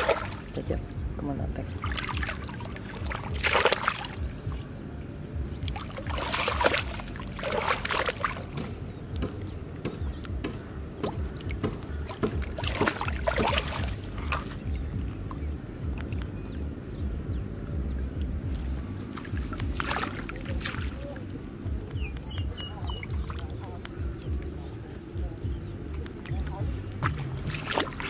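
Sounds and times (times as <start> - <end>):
hands splashing in muddy water: 0.0 - 0.6, 1.8 - 4.2, 5.6 - 9.4, 11.0 - 15.0, 18.5 - 21.2, 25.9 - 28.0
steady low rumble: 0.0 - 28.0.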